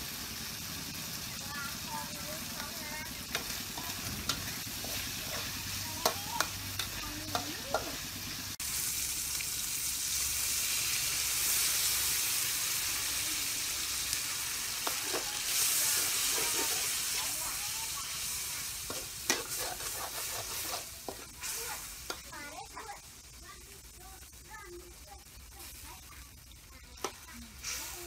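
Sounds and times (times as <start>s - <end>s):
food frying in a wok: 0.0s - 28.0s
water hissing in hot wok: 0.0s - 28.0s
metal spatula scraping a pan: 3.0s - 8.0s, 14.8s - 17.4s, 18.1s - 22.2s.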